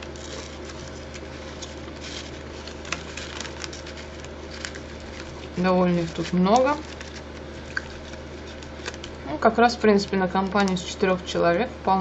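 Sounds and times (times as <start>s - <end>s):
potato chips rustling: 0.0s - 11.0s
foil snack bag crinkling: 0.0s - 11.1s
steady low hum: 0.0s - 12.0s.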